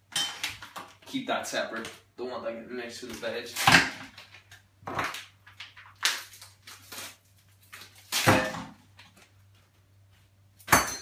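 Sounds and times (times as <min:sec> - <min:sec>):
utensils and cookware clattering: 0:00.1 - 0:00.8, 0:10.6 - 0:11.0.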